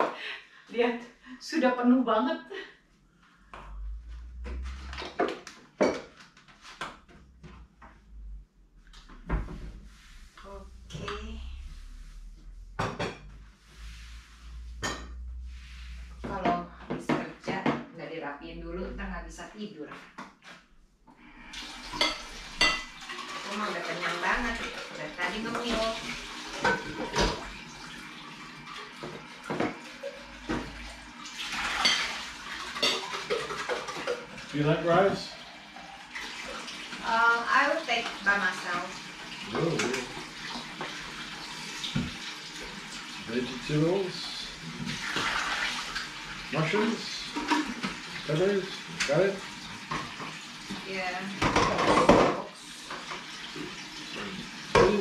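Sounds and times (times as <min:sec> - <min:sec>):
kitchen tap running: 0:21.2 - 0:55.0
tableware clinking: 0:22.0 - 0:22.9.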